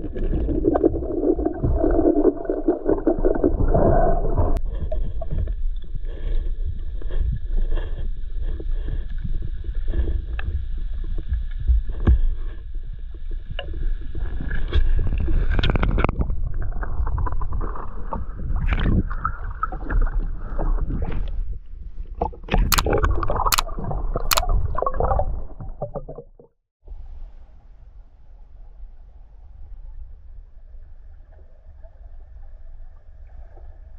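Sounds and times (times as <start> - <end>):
muffled underwater rumble and gurgling: 0.0 - 33.9
sharp clicks: 24.3 - 24.5.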